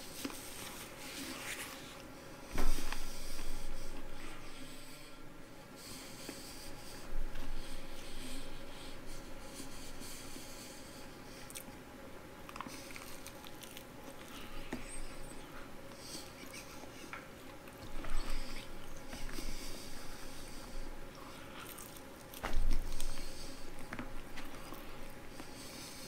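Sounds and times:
man chewing fried chicken: 0:06.1 - 0:11.8, 0:12.4 - 0:26.0.

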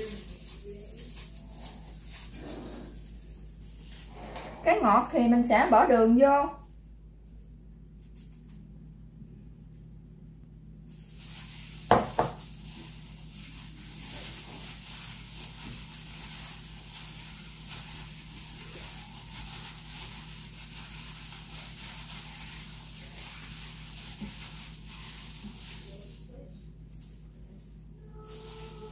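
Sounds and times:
grainy rustle of sugar in rice flakes: 0:00.0 - 0:04.3, 0:10.9 - 0:27.6, 0:28.2 - 0:28.9.

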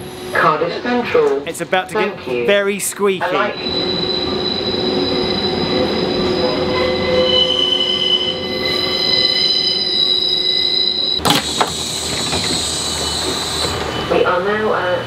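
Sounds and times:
train wheels squealing: 0:03.4 - 0:11.2, 0:11.8 - 0:14.4.

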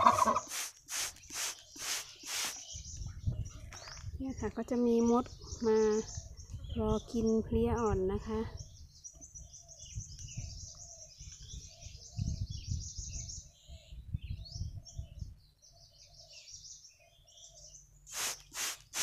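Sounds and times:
small birds chirping: 0:00.0 - 0:19.0
loud swishing strokes: 0:00.4 - 0:02.6, 0:18.1 - 0:19.0.

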